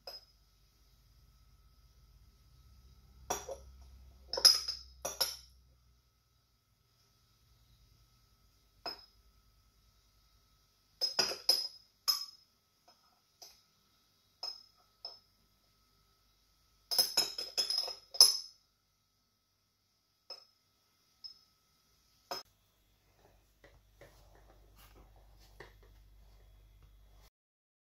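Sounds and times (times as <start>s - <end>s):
metal utensil clinking against glass: 16.9s - 18.5s.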